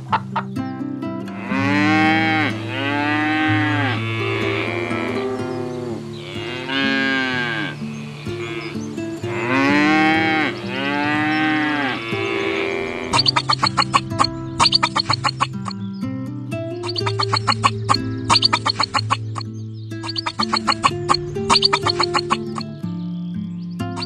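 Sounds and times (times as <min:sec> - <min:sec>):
soft background music: 0:00.0 - 0:24.0
cow mooing: 0:01.3 - 0:14.2.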